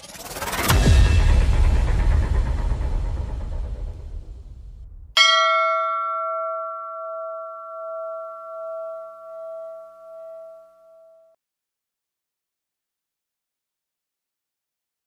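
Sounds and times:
low rumble: 0.7 - 5.2
bell ringing with throbbing wobble: 5.2 - 11.2.

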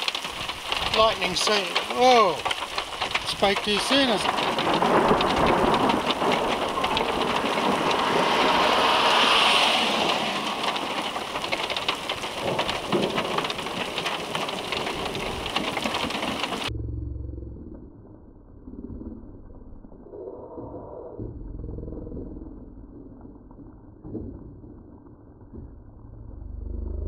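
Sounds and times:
heavy rain pelting down: 0.0 - 16.7
thunder: 0.0 - 16.7.

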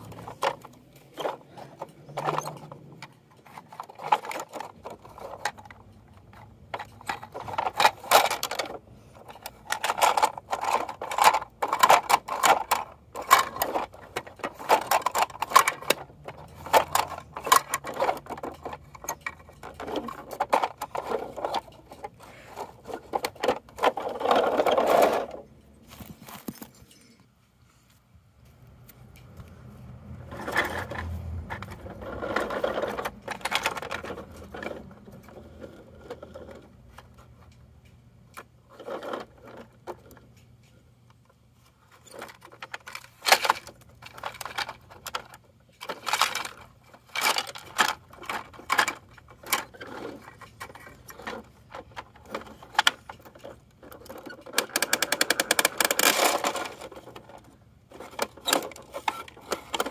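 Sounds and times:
fast plastic rattle: 0.0 - 25.4, 30.3 - 37.2, 41.9 - 59.9
continuous rough plastic noise: 0.0 - 27.2, 27.8 - 59.9
plastic clicks and knocks: 42.1 - 59.9.

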